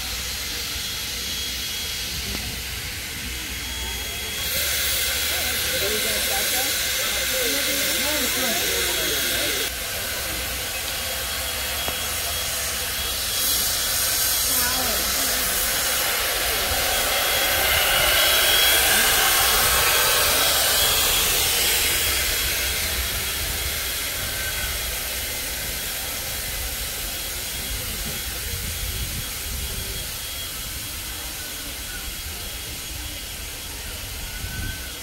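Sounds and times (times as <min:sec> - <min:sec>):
steam hissing: 0:00.0 - 0:35.0.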